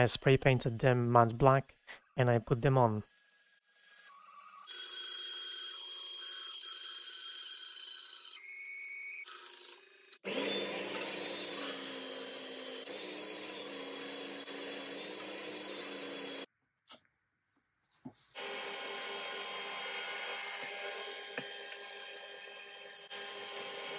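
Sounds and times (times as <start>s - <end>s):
bandsaw cutting: 9.2s - 16.5s, 18.3s - 23.9s
drill press running: 9.4s - 16.5s, 18.4s - 23.9s
belt sander running: 10.2s - 16.5s, 18.4s - 23.9s.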